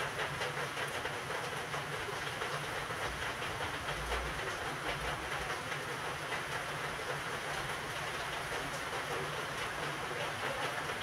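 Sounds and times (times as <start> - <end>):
heavy rain hissing: 4.3 - 11.0.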